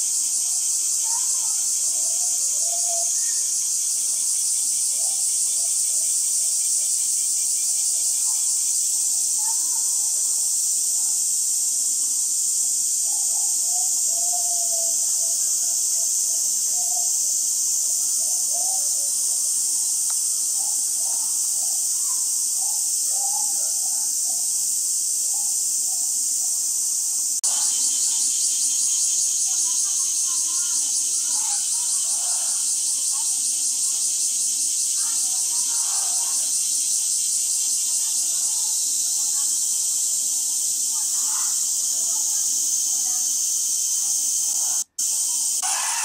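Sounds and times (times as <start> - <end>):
high-pitched insect drone: 0.0 - 46.0
faint voices: 1.0 - 3.5, 29.2 - 33.9, 37.8 - 46.0.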